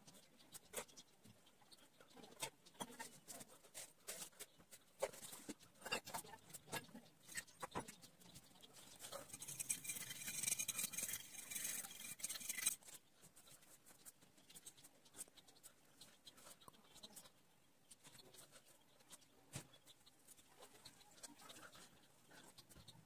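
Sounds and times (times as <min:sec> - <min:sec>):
pen scratching on paper: 0:08.8 - 0:14.0.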